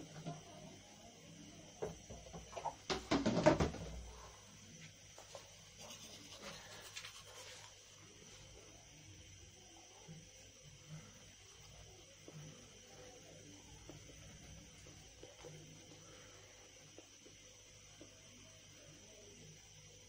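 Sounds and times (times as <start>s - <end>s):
objects knocking and clattering: 1.8s - 4.1s
scratching and rustling: 5.3s - 7.8s.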